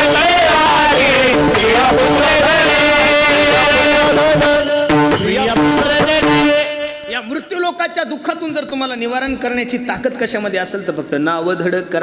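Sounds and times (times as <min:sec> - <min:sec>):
voices singing a chanted refrain: 0:00.0 - 0:07.1
steady held notes: 0:00.0 - 0:07.5
sharp percussion strikes: 0:00.0 - 0:07.6.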